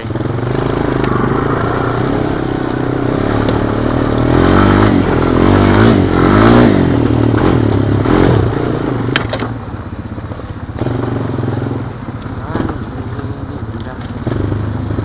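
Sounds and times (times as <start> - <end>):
atv engine revving: 0.0 - 15.0.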